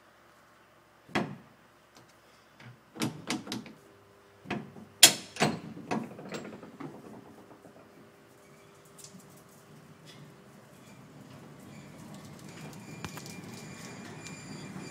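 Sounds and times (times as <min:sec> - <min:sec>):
tram clunks and knocks: 0:04.5 - 0:08.0, 0:10.9 - 0:14.9.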